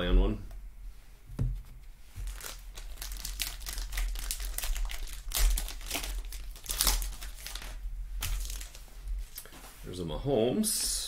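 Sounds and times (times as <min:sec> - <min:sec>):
foil wrapper crinkling: 0:02.2 - 0:09.5.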